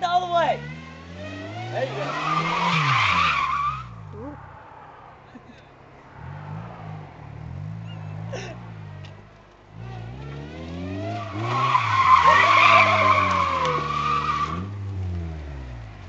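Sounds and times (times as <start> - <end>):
car engine revving: 0.0 - 16.0
tyres squealing: 1.6 - 4.5, 11.1 - 14.7.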